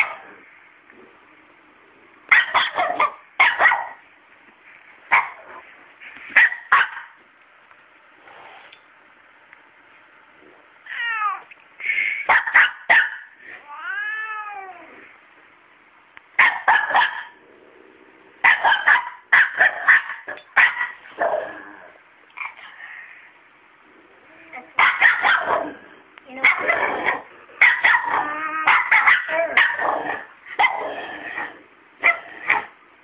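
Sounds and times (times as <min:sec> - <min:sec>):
small dog barking: 0:02.3 - 0:04.0, 0:05.1 - 0:05.5, 0:06.4 - 0:07.2, 0:12.3 - 0:13.3, 0:16.4 - 0:17.4, 0:18.4 - 0:21.4, 0:24.8 - 0:31.0, 0:32.0 - 0:32.7
cat meowing: 0:10.9 - 0:11.5, 0:13.6 - 0:15.0.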